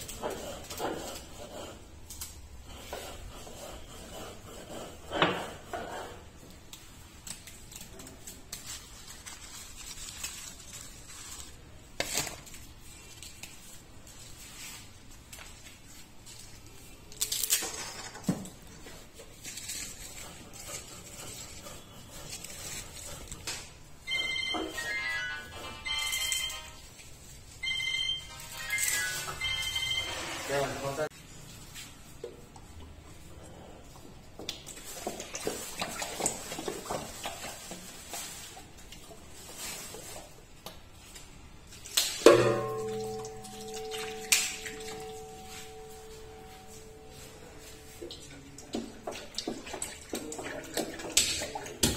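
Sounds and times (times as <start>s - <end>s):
leaves and plastic bag crinkling: 7.4s - 17.8s, 34.8s - 42.0s
phone ringtone melody: 24.1s - 26.9s, 27.6s - 30.5s, 43.4s - 47.7s
metallic clang ringing bell-like: 42.3s - 47.5s.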